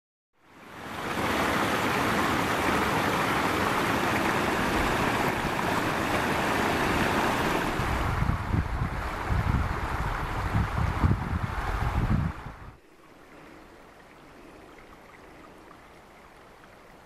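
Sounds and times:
stream rushing and splashing: 0.4s - 17.0s
wind gusts buffeting microphone: 1.2s - 12.8s.

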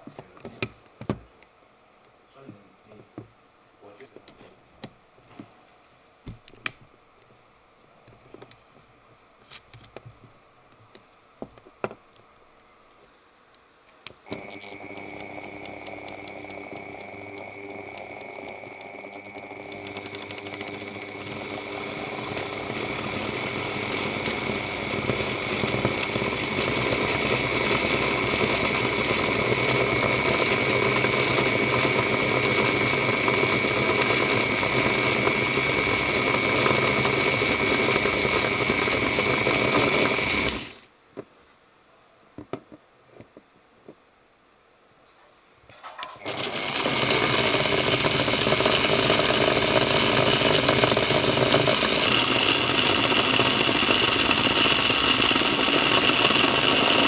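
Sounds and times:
rotary tool high whine: 14.2s - 40.8s, 46.0s - 57.0s.

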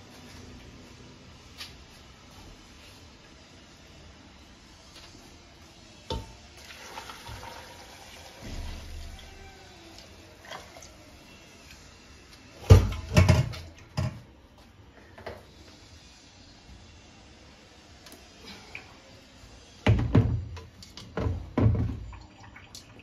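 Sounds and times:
water poured into pot: 6.6s - 8.9s.

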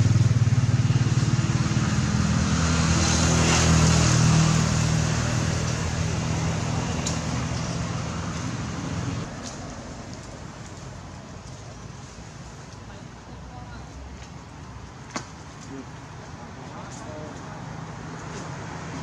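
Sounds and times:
vehicle engine droning: 0.0s - 9.3s.

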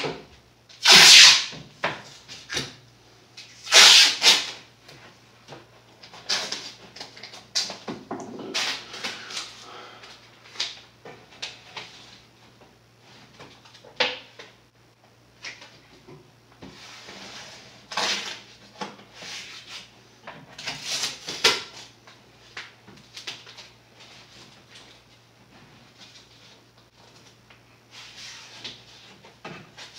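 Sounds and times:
tape and paper rustling: 0.8s - 2.7s, 3.4s - 4.6s, 20.6s - 25.2s.

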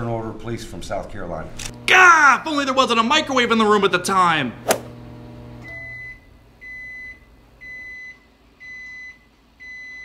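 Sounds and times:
microwave oven beeping: 4.9s - 10.0s.

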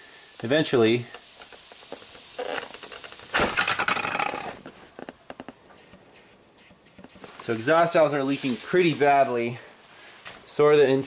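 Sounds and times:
compressed air hissing: 0.0s - 3.6s
air sputtering past rubber plug: 0.0s - 7.5s.

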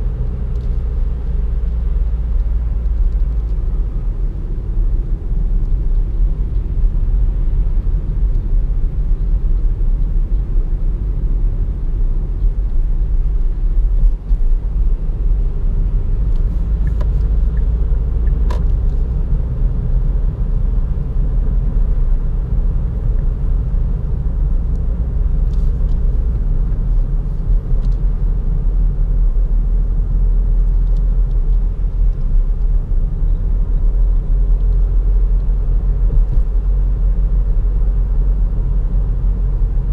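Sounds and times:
car cabin road and tyre rumble: 0.0s - 39.9s.

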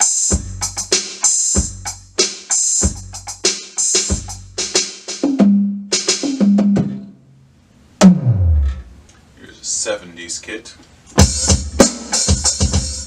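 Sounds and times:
snare and hi-hat hits: 0.0s - 7.0s, 11.2s - 13.0s
pitched electronic tom tones: 5.2s - 7.4s, 8.0s - 9.1s.

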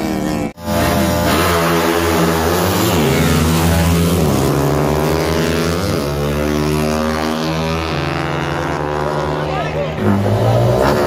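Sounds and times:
motorcycle accelerating hard: 0.0s - 11.0s.

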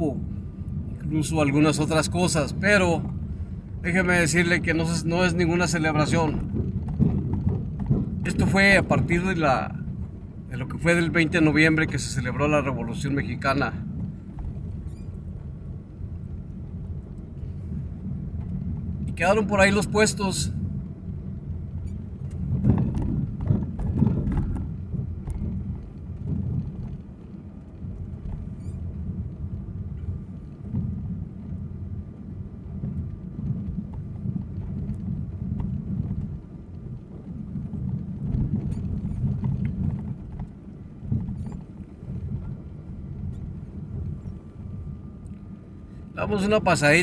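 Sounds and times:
car engine and tyre rumble: 0.0s - 47.0s
knocks and rattles: 6.0s - 9.4s, 22.2s - 28.8s.

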